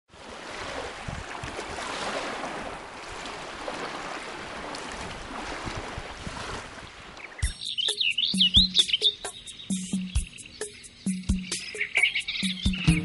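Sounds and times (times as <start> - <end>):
water waves splashing: 0.1 - 7.5.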